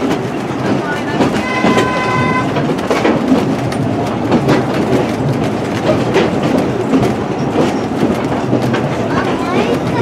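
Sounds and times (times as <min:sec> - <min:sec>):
train running rumble: 0:00.0 - 0:10.0
train wheels clicking over rail joints: 0:00.0 - 0:10.0
train horn: 0:01.3 - 0:02.7.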